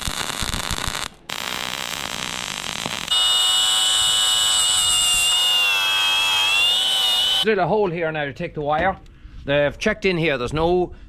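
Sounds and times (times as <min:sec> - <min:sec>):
welder crackling: 0:00.0 - 0:07.5
cordless drill whining: 0:03.1 - 0:07.4.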